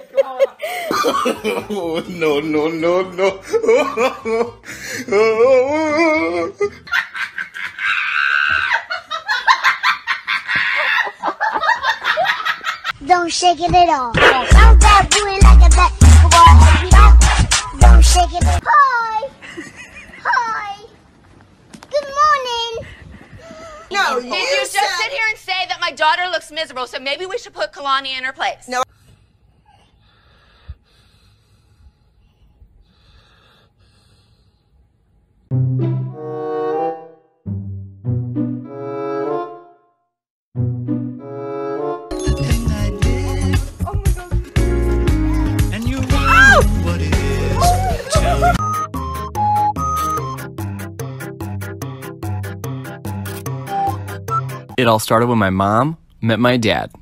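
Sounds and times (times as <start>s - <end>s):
person laughing hard: 0.0s - 2.1s, 2.9s - 12.8s, 47.5s - 48.6s.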